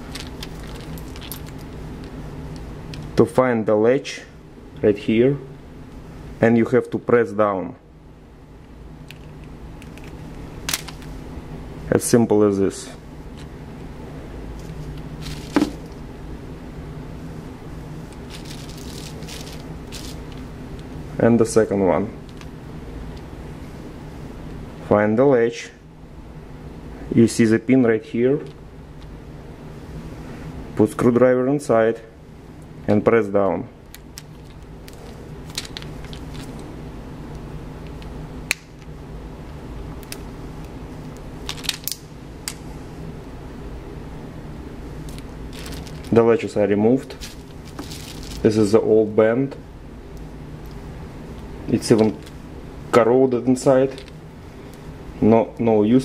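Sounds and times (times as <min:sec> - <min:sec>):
steady low hum: 0:00.0 - 0:56.0
hands rustling on plastic: 0:14.6 - 0:16.0, 0:18.1 - 0:20.8, 0:34.2 - 0:36.7, 0:45.1 - 0:46.2, 0:47.1 - 0:48.6.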